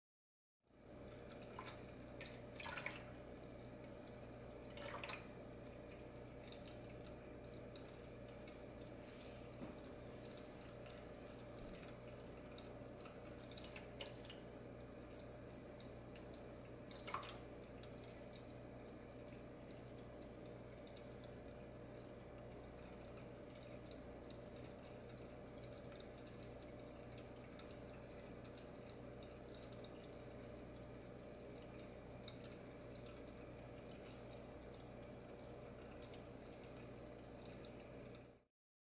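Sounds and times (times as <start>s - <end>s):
water trickling into bowl: 0.8s - 38.4s.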